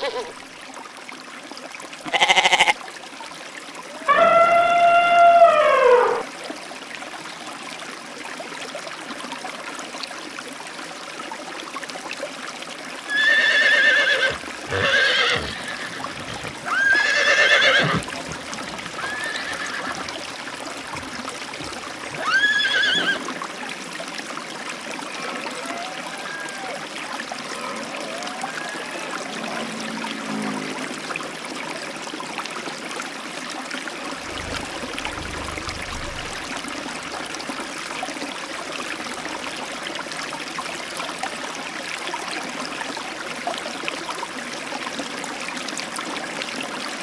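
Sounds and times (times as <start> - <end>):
horse whinnying: 0.0 - 0.4, 4.1 - 6.2, 13.1 - 20.2, 22.1 - 23.3
flowing river water: 0.0 - 47.0.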